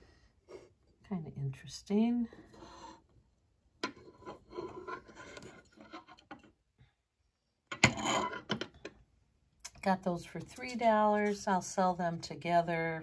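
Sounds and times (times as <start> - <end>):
bottle openers scraping on countertop: 4.0 - 6.2.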